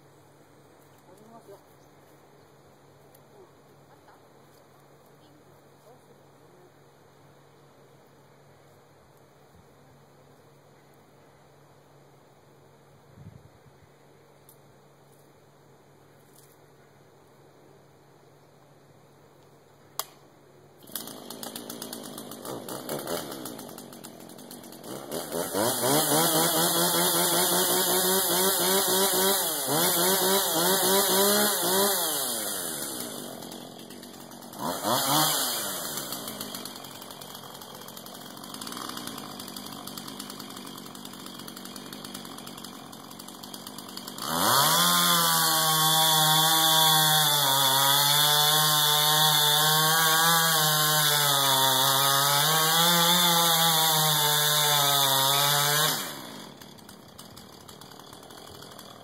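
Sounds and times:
chainsaw cutting tree trunk: 20.8s - 59.0s
chainsaw revving: 20.8s - 59.0s.

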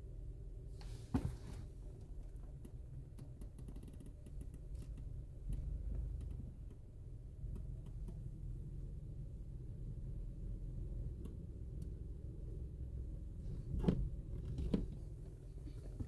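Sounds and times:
low rumble in car wash: 0.0s - 16.0s
thump: 1.1s - 1.6s
faint light ticks: 2.5s - 6.9s, 7.5s - 8.2s, 11.1s - 12.0s.

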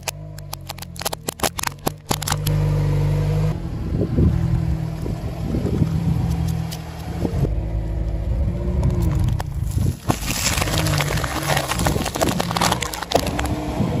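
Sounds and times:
crisp cans crunching under tyre: 0.0s - 2.5s, 8.8s - 13.7s
car engine humming: 0.0s - 14.0s.

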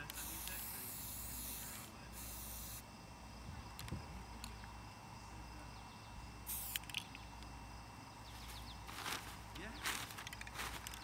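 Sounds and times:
spray paint can hissing: 0.0s - 2.9s, 6.4s - 7.2s.

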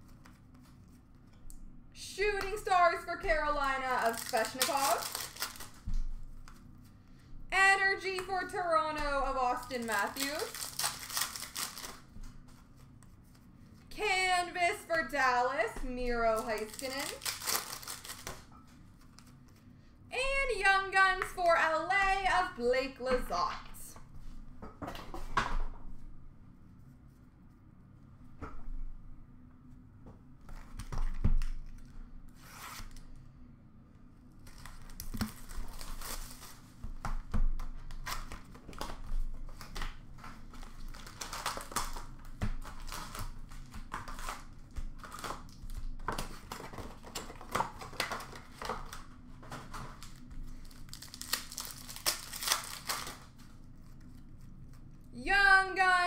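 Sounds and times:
card pack wrappers crinkling: 3.6s - 5.8s, 9.6s - 12.9s, 16.2s - 18.5s, 34.4s - 36.7s, 37.9s - 54.9s.

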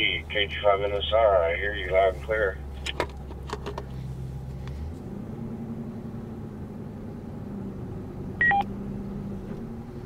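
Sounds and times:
car cabin hum: 0.0s - 5.2s
two-tone electronic beep: 8.4s - 8.7s.

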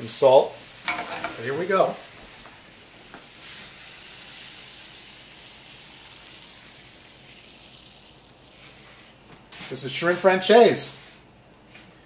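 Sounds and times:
sauce sizzling: 0.0s - 9.3s.

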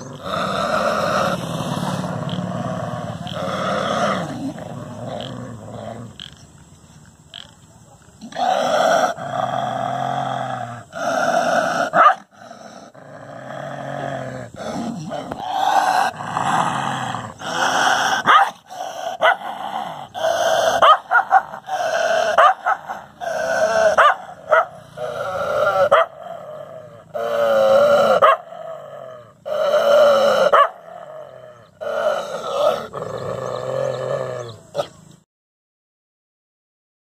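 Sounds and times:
dog barking and howling: 11.8s - 12.3s, 17.5s - 35.0s.

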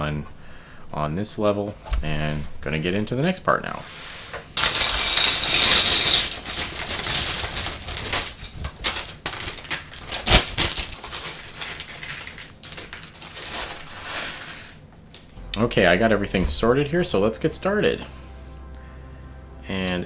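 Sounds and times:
plastic bags crinkling: 4.6s - 14.8s
plastic bricks clattering on tabletop: 4.6s - 14.8s.

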